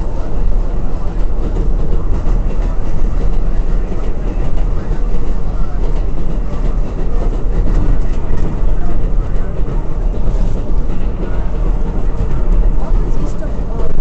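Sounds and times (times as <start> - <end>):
subway train wheels rumbling: 0.0 - 14.0.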